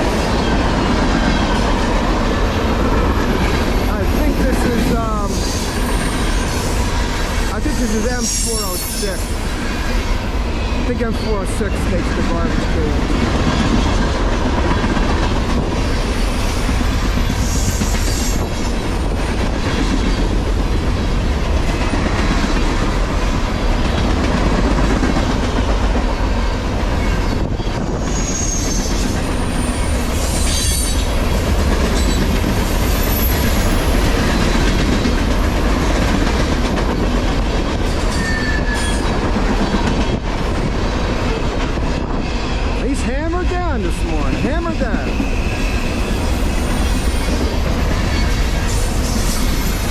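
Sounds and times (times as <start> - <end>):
train wheels rumbling on rails: 0.0 - 49.9
high wheel squeals: 7.7 - 10.8, 28.0 - 31.1, 37.9 - 39.2, 45.0 - 49.9.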